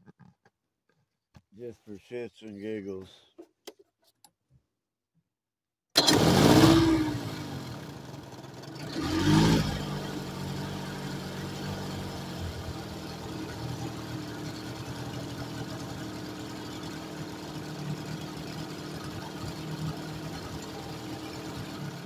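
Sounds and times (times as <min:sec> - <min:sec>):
outboard motor revving: 0:06.0 - 0:22.0.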